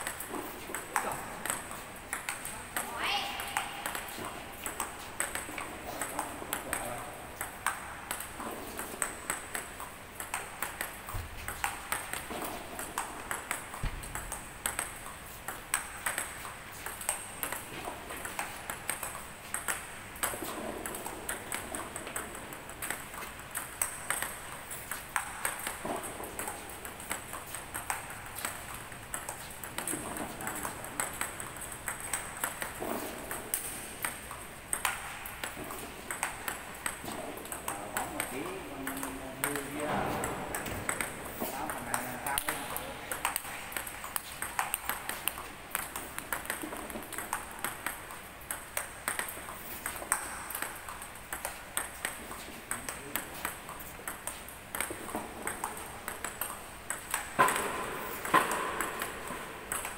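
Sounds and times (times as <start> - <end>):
table tennis balls clicking: 0.0 - 59.9.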